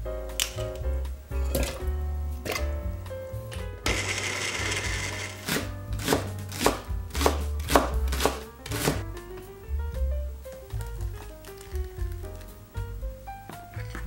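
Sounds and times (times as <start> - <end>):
blender whirring: 3.9 - 5.6.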